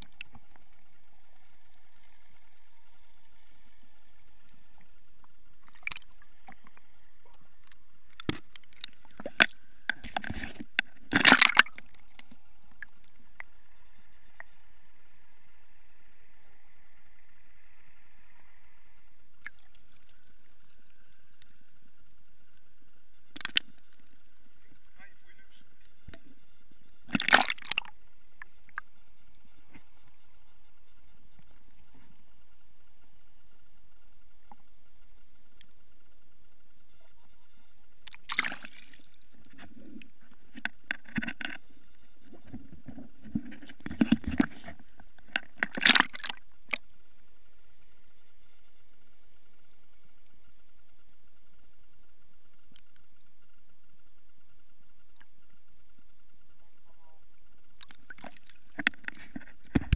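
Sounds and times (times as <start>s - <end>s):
faint water hiss: 0.0s - 59.9s
water sloshing and splashing: 5.6s - 6.8s, 7.6s - 13.0s, 27.1s - 28.0s, 38.0s - 39.8s, 42.3s - 46.8s, 57.8s - 59.9s
water splash: 11.1s - 12.2s, 27.1s - 27.9s, 38.0s - 39.1s, 45.6s - 46.8s.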